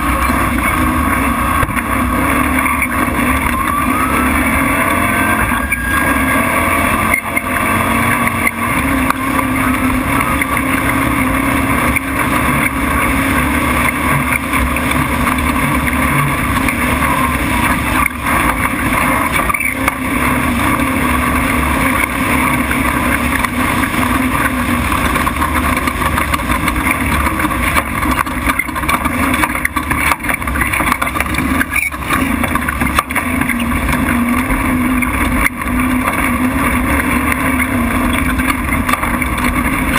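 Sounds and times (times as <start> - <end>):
truck engine running hard: 0.0 - 39.9.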